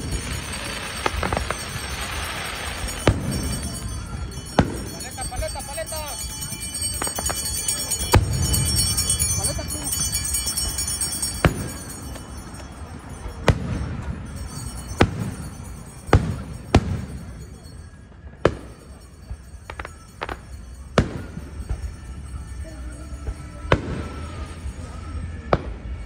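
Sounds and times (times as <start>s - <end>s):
firework booms with echo: 0.0s - 5.5s, 7.0s - 10.6s, 11.2s - 12.2s, 13.4s - 17.6s, 23.2s - 24.7s.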